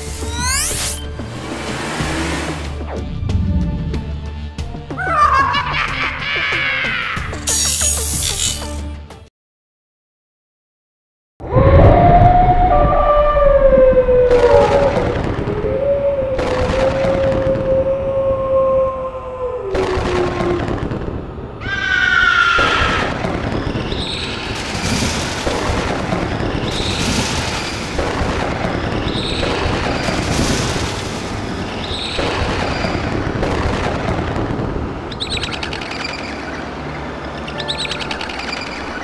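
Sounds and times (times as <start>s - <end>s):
loud rushing noise: 0.0s - 4.7s
cartoon wolf howl: 5.0s - 7.4s, 11.4s - 20.8s.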